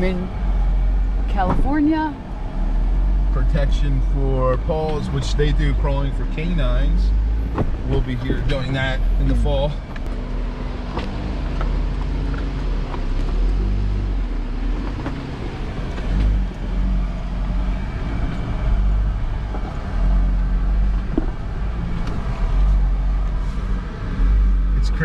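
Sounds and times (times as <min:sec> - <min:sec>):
car engine low hum: 0:00.0 - 0:25.0.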